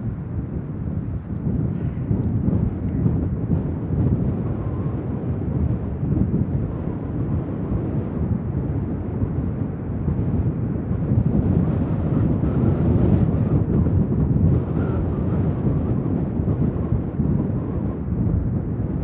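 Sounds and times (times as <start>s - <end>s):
turboprop engines rumbling: 0.0s - 19.0s.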